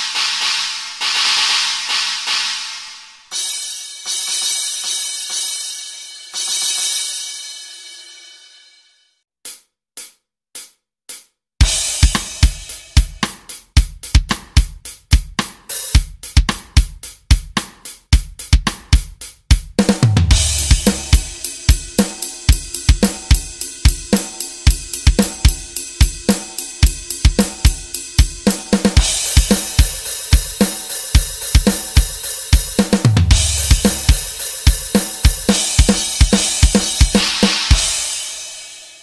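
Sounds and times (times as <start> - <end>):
crash cymbal with deep drum boom: 0.0 - 3.1, 11.6 - 14.7, 20.0 - 39.0
drum kit groove: 0.0 - 7.6, 9.4 - 39.0.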